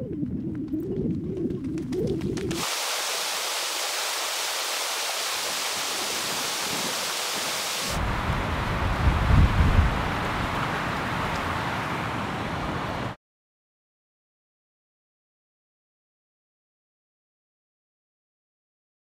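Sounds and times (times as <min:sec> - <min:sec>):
river water rushing: 0:02.6 - 0:13.2.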